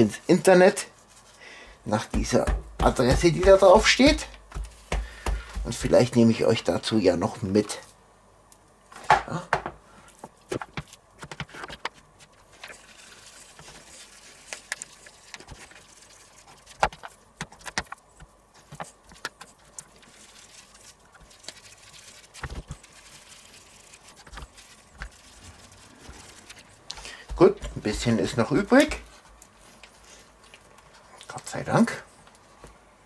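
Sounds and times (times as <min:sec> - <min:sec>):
meat pressed into plastic container: 0:02.0 - 0:06.0.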